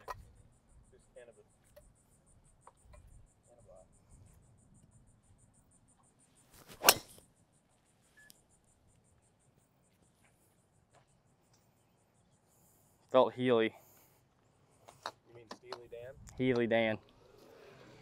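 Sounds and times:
insects chirping: 0.0 - 18.0
golf driver striking ball: 6.8 - 7.2.

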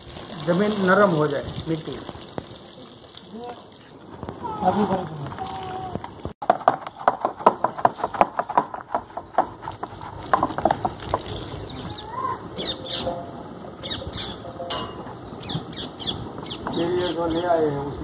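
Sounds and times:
small birds chirping: 5.4 - 6.2, 8.4 - 9.3, 11.1 - 17.8
sharp knocks: 6.4 - 11.2.

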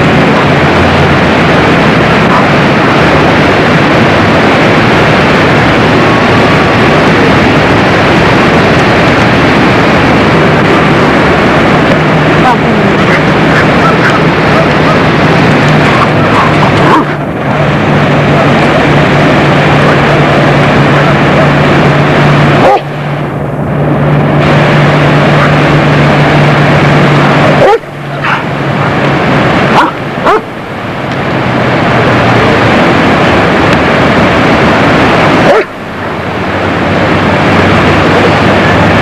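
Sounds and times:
loud rushing noise: 0.0 - 39.0
dog barking: 2.3 - 2.6, 13.1 - 15.1, 15.9 - 17.2, 22.6 - 22.9, 27.6 - 29.0, 29.7 - 30.5, 35.4 - 35.8.

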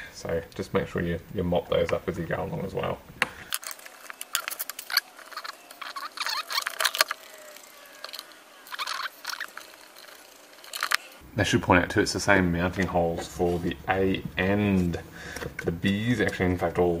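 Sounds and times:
handling wires in plastic enclosure: 3.4 - 8.2.

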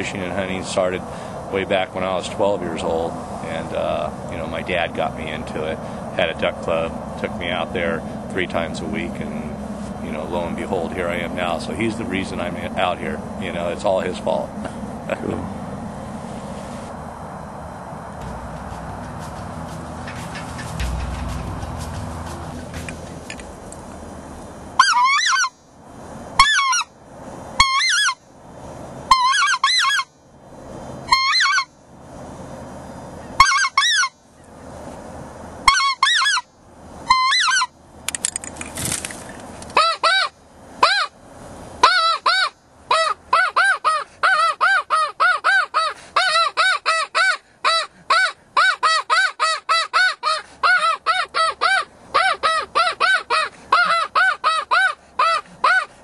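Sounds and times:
goose call honks: 18.2 - 23.2, 24.8 - 25.6, 29.1 - 30.1, 31.1 - 31.7, 33.4 - 34.2, 35.6 - 36.5, 37.1 - 37.7, 41.8 - 56.0.

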